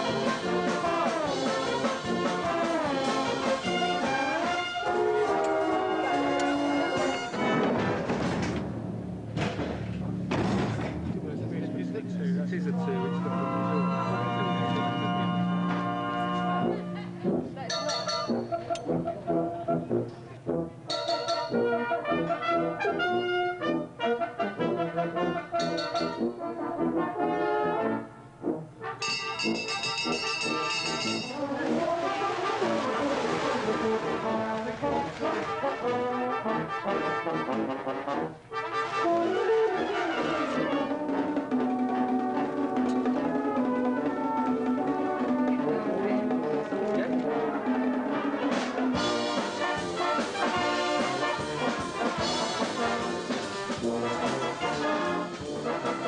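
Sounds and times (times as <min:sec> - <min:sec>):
brass band music: 0:00.0 - 0:56.0.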